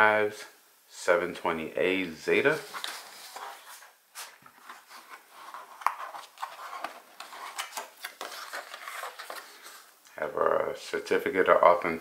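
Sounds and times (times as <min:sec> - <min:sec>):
packaging rustling: 0:02.6 - 0:09.9.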